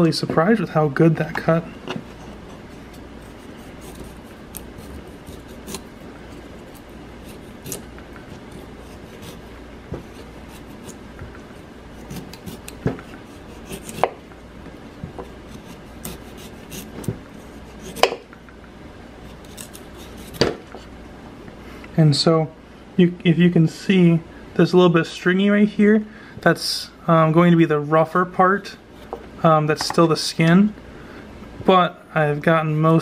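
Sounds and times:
knife slicing and scraping: 2.0s - 14.2s, 15.1s - 18.2s, 19.2s - 20.9s.

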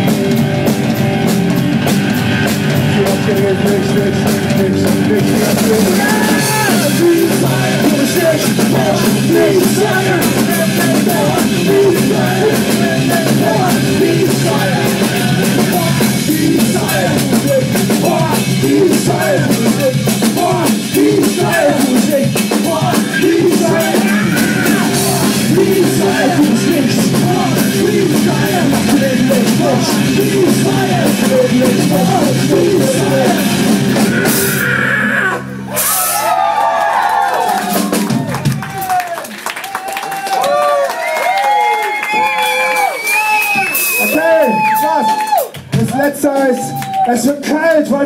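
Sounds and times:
live rock band playing: 0.0s - 36.6s, 37.4s - 39.0s, 42.2s - 46.7s
person singing: 2.8s - 35.4s.

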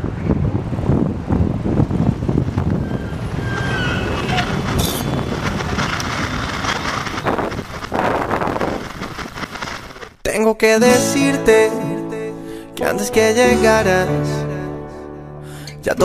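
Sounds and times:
wind on a microphone: 0.0s - 10.1s.

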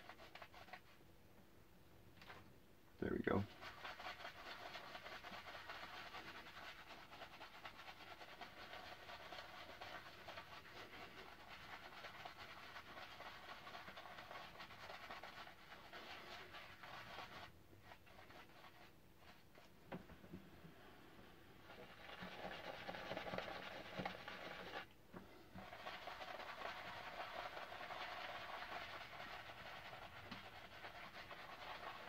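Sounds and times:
shaving brush squishing lather: 0.0s - 0.9s, 3.4s - 19.7s, 21.6s - 24.9s, 25.6s - 32.0s.

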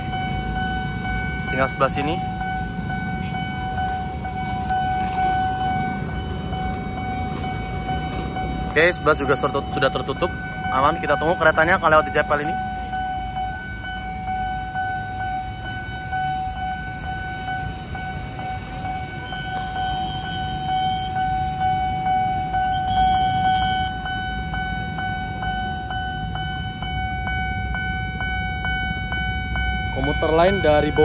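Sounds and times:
level crossing alarm tone: 0.0s - 31.0s
motorbike engines idling: 0.0s - 31.0s
brief higher tone: 19.2s - 21.3s.

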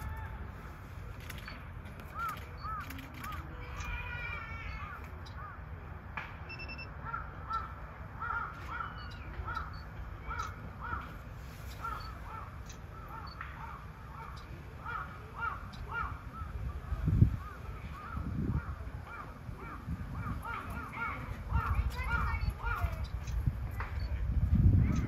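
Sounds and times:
crows cawing: 7.0s - 16.7s, 17.3s - 22.8s.

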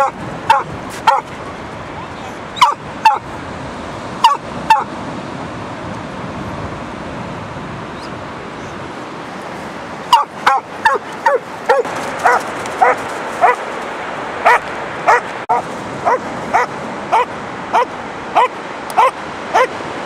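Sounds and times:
dog barking: 0.0s - 1.3s, 2.6s - 3.3s, 4.2s - 4.9s, 10.1s - 13.6s, 14.4s - 19.8s.

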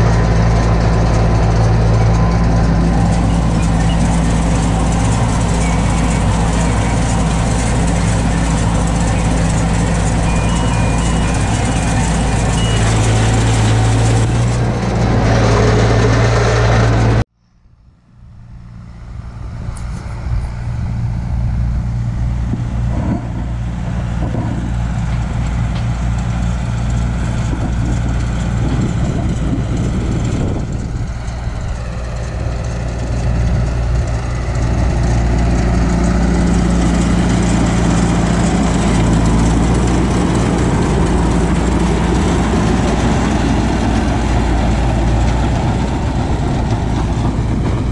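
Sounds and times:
tractor engine running: 0.0s - 17.3s, 18.2s - 47.9s.

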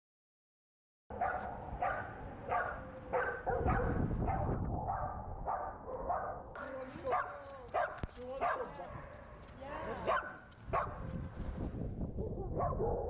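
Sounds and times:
dog barking: 1.1s - 9.4s, 10.0s - 11.2s, 12.2s - 13.0s.

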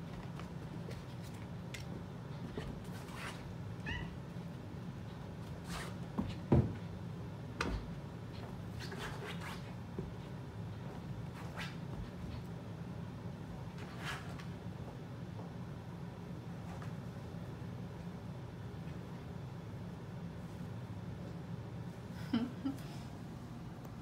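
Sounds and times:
cat meowing: 3.8s - 4.2s.

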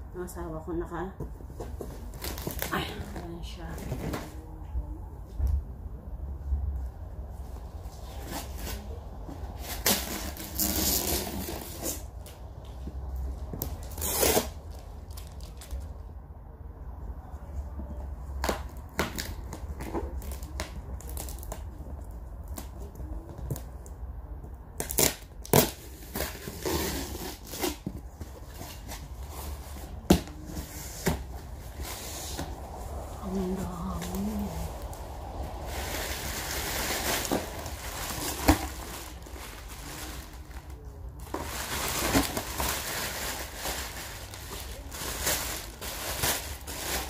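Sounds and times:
packing tape ripping: 9.6s - 12.1s, 13.7s - 15.8s, 24.8s - 27.9s.

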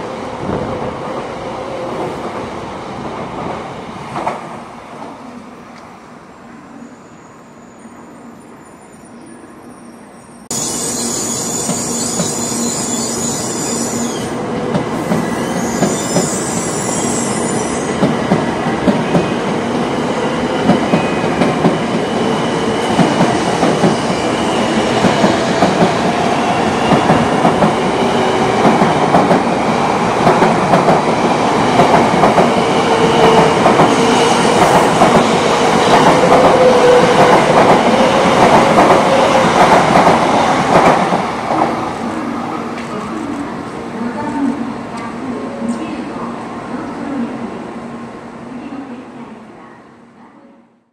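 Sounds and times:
train wheels rumbling on rail: 0.0s - 5.1s, 10.5s - 46.1s
rail clacks: 20.6s - 41.8s.

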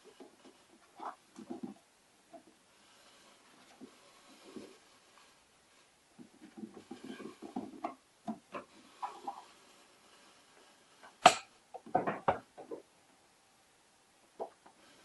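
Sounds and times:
rubbing and scraping of plastic: 0.0s - 11.2s.

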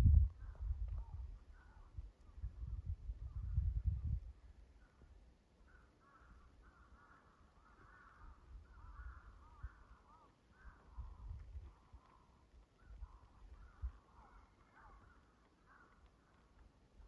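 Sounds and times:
faint low rumble: 0.0s - 5.2s.

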